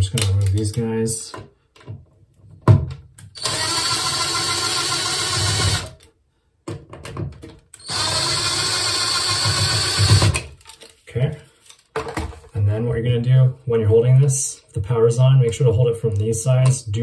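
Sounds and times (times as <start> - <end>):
cordless drill running: 3.4 - 6.1, 7.8 - 10.4.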